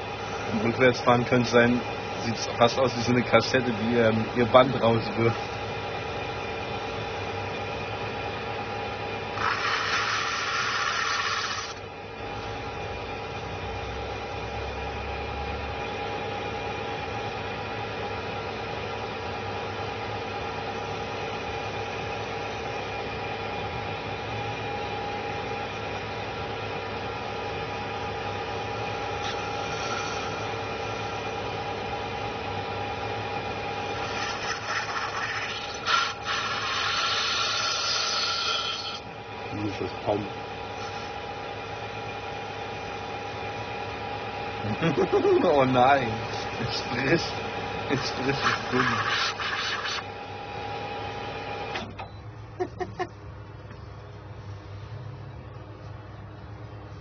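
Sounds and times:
metal lathe humming and whining: 0.0s - 52.0s
hissing cutting noise: 46.4s - 50.1s.

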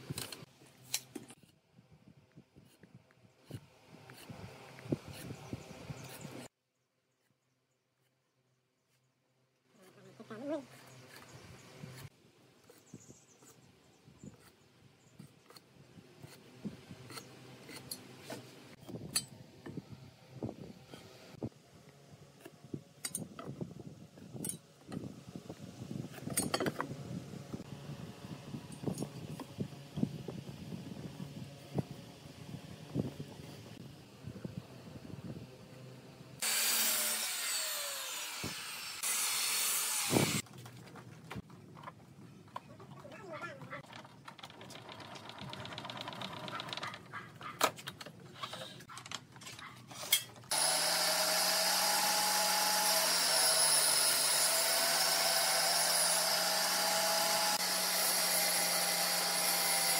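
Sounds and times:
saw cutting wooden board: 36.4s - 40.4s, 50.5s - 59.9s.

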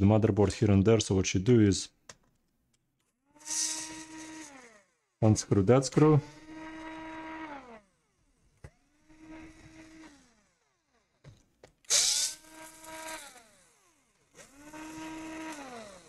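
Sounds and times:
electric screwdriver whirring: 3.1s - 5.1s, 5.9s - 16.0s.

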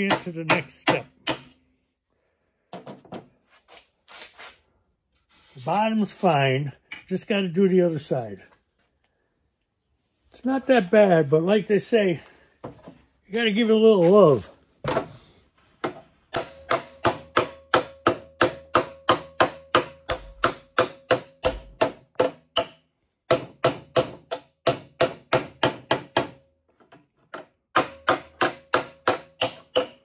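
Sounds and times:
small hammer tapping metal: 16.3s - 26.4s, 27.8s - 30.0s.

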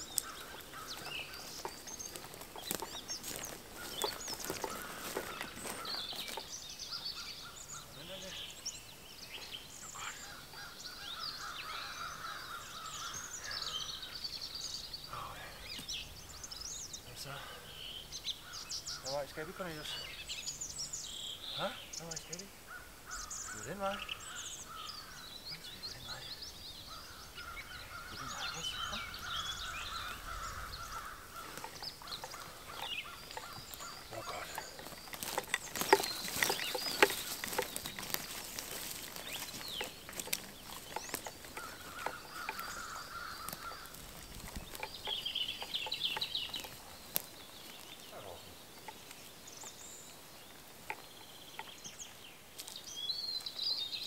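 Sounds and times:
twigs snapping: 0.0s - 6.6s, 28.0s - 48.1s, 50.4s - 53.6s
footsteps crunching: 0.0s - 8.4s, 26.9s - 54.0s
birds calling and singing: 0.0s - 54.0s.

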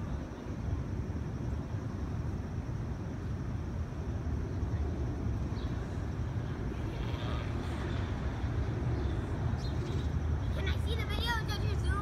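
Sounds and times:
low outdoor background rumble: 0.0s - 12.0s.

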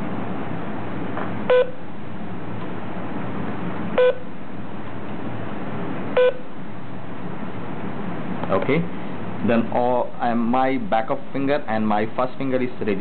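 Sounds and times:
short electronic beeps: 1.5s - 1.8s, 4.0s - 4.3s, 6.2s - 6.5s.

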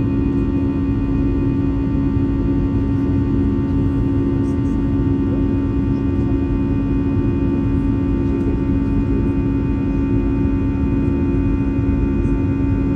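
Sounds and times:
jet engines droning in cabin: 0.0s - 12.9s.

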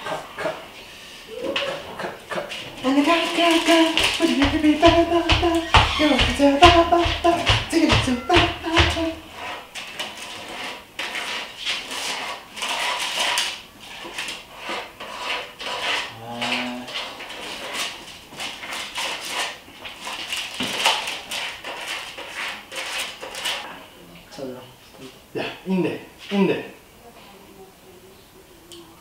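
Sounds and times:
metal tin scraping and clattering: 9.3s - 23.7s.

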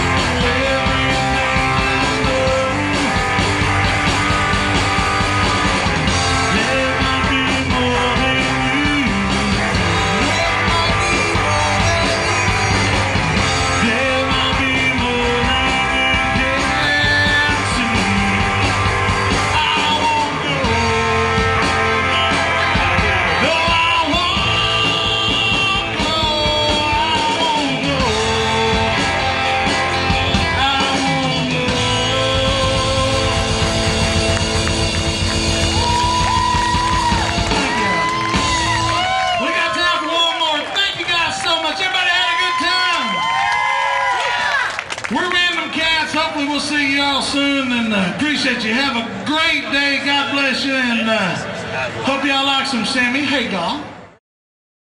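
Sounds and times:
male singer singing: 0.0s - 3.2s, 6.4s - 18.8s, 19.4s - 29.6s, 30.2s - 33.8s
drum kit: 0.0s - 39.8s
electric guitars: 0.0s - 41.8s.

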